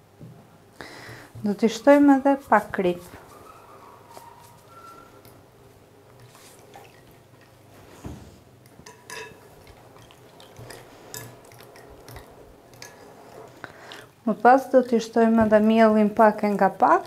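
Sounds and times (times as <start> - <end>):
wet stirring: 1.4 - 17.0
fork clinking against glass bowl: 8.7 - 9.8, 10.7 - 13.0.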